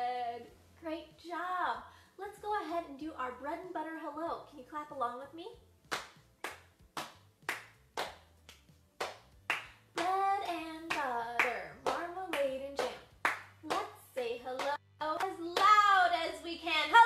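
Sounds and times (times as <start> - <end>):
woman clapping hands: 5.9 - 13.9
woman singing: 10.0 - 17.0.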